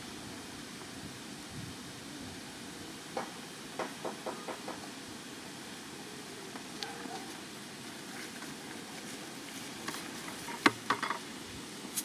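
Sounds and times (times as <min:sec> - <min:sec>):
steady outdoor hiss: 0:00.0 - 0:12.0
sharp clicks and knocks: 0:09.8 - 0:11.2.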